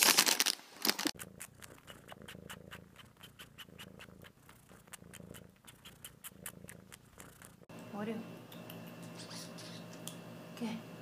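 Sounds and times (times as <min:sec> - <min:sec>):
cat purring: 0:01.1 - 0:07.7.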